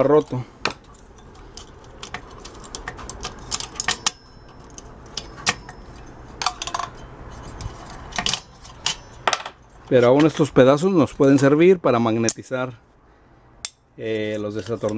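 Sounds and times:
sharp clicks and metal clinks: 0.0s - 10.5s
short metallic ring: 3.5s - 7.5s, 8.2s - 9.8s.

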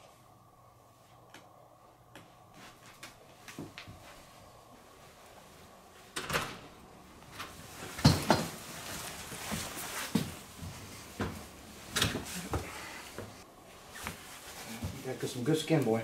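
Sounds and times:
shuffling: 7.1s - 16.0s.

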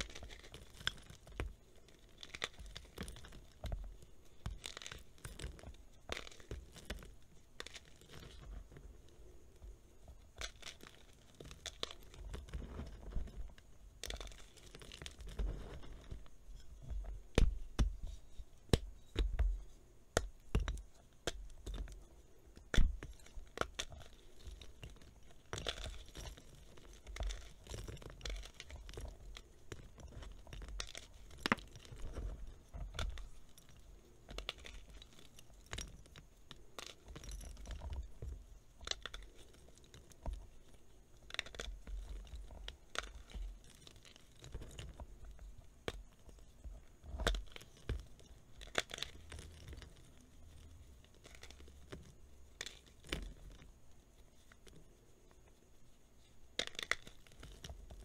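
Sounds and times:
chalk crunching and snapping: 0.0s - 9.1s, 38.8s - 53.7s, 56.6s - 58.0s.

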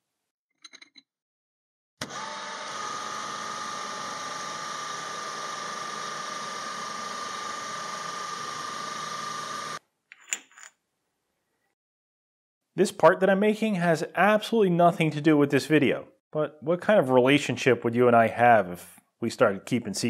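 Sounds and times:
metal lathe cutting metal: 2.1s - 9.8s.

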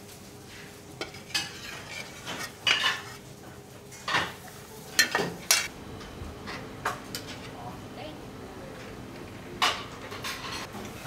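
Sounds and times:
metal spoon scraping a frying pan: 1.0s - 3.2s.

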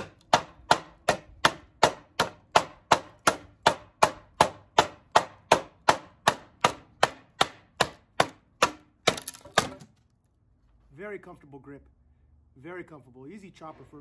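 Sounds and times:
knife chopping wood: 0.0s - 10.0s.

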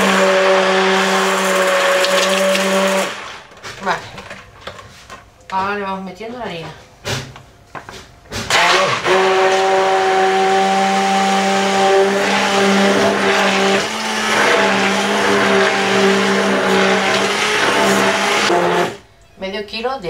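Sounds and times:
stick blender whirring: 0.0s - 4.0s, 8.5s - 19.0s.

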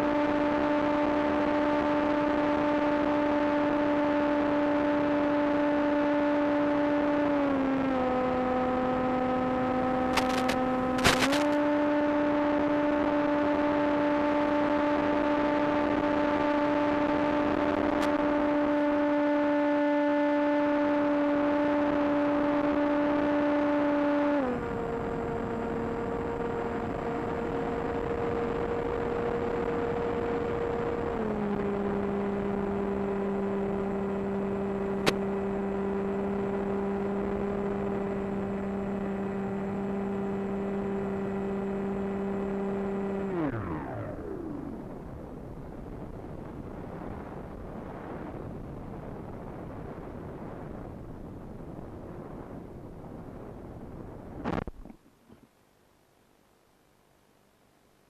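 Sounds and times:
rc plane motor whine: 5.6s - 19.1s, 21.1s - 45.3s
sharp clicks: 10.1s - 11.6s.

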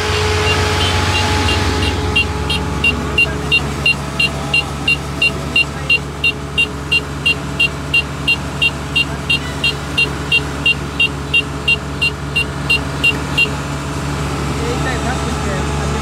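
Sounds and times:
diesel engine running: 0.0s - 16.0s
high electronic beeps: 0.4s - 13.5s.

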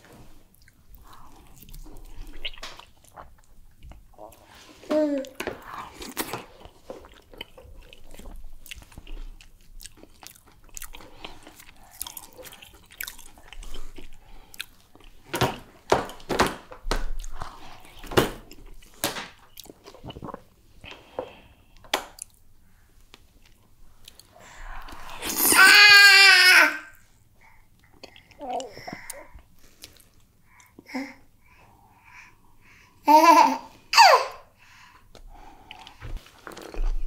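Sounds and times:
wet chewing: 5.9s - 15.2s.

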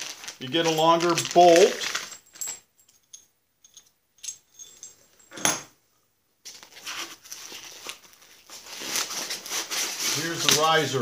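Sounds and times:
foam packing rustling: 0.0s - 2.2s, 6.5s - 11.0s
small metal clinks: 2.0s - 5.7s.

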